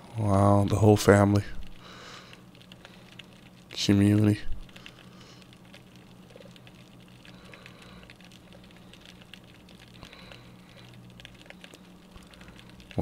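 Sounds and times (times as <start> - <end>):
low hum: 0.0 - 13.0
underwater clicks and crackles: 1.5 - 13.0.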